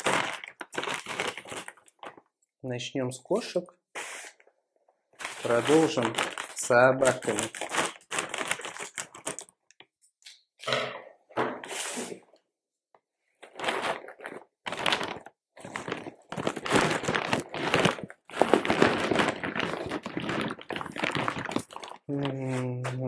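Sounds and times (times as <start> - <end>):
plastic bag crinkling: 0.0 - 2.3, 5.2 - 9.6, 13.4 - 23.0.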